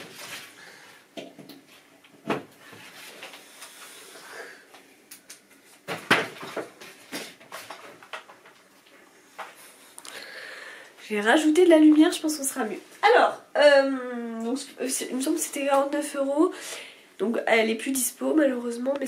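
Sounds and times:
rustling: 0.0s - 0.8s.

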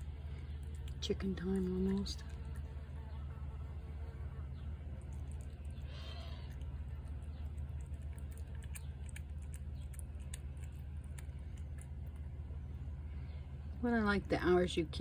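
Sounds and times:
cat chewing and licking: 0.0s - 3.0s, 4.7s - 13.0s
steady low hum: 0.0s - 15.0s.

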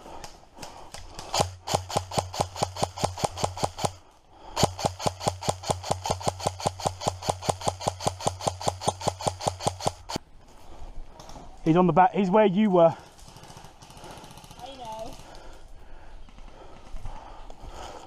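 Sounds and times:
airsoft rifle rapid shots: 1.2s - 10.2s.

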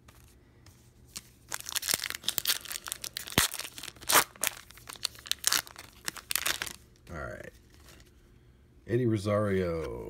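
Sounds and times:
card pack wrapper tearing: 1.5s - 6.8s.

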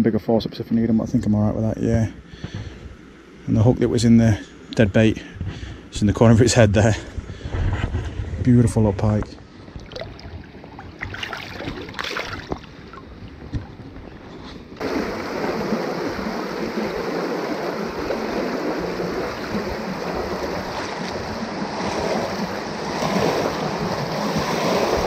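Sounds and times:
light water splashing: 9.6s - 25.0s.

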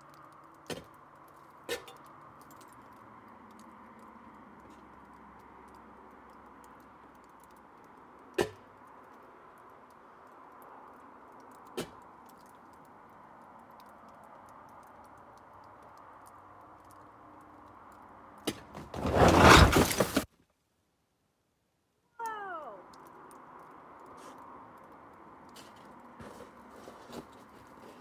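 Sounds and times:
water dripping from icicles: 0.0s - 18.4s, 22.2s - 26.2s.

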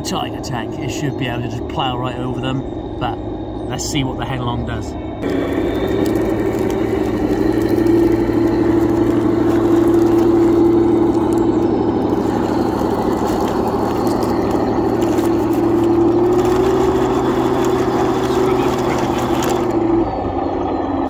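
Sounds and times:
toy tank drive whirring: 5.2s - 20.4s.

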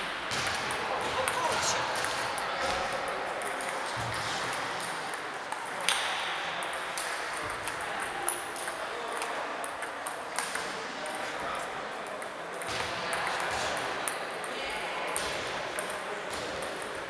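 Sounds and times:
sharp table tennis hits: 0.0s - 11.4s, 12.0s - 17.0s
table tennis balls clicking: 0.4s - 11.2s.

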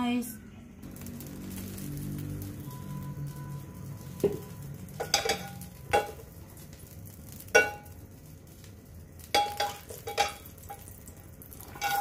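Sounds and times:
frying pan clanking on burner grate: 4.2s - 6.4s, 7.3s - 8.0s, 9.2s - 11.0s, 11.8s - 12.0s.

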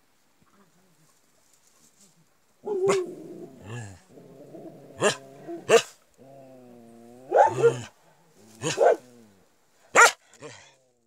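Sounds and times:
puppies growling: 2.9s - 7.8s.

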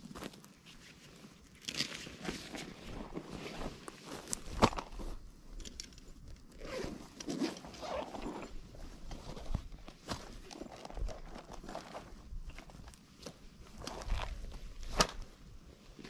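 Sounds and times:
rustling and handling noises: 0.0s - 16.0s
zipper pulled: 6.6s - 8.7s.

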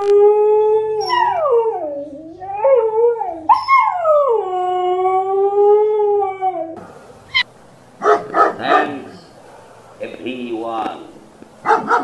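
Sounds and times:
dog howling: 0.0s - 9.3s.

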